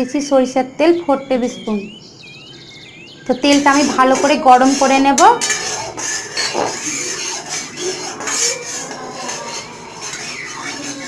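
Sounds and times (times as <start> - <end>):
spatula scraping metal pan: 3.4 - 11.0.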